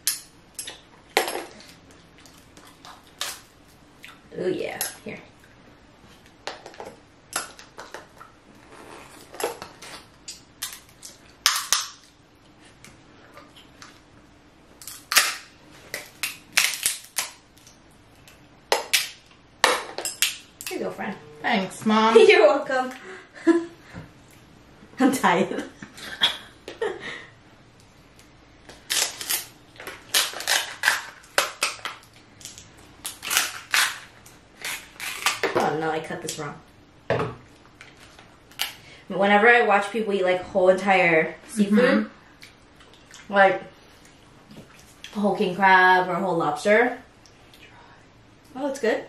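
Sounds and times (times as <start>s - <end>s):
scissors crunching crab shell: 10.3s - 12.1s, 14.8s - 17.7s, 28.7s - 35.5s
crab shell cracking: 10.3s - 12.2s, 14.8s - 20.7s.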